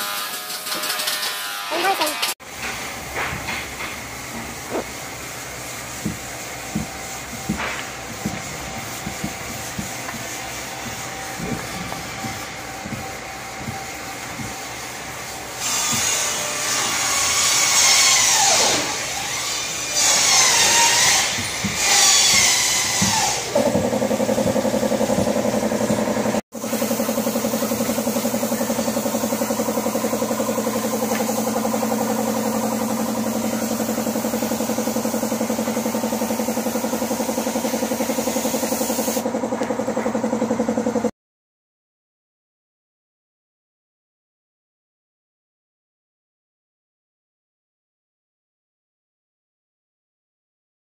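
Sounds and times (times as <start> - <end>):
air compressor humming: 0.1 - 41.1
spray gun hissing: 3.5 - 39.2.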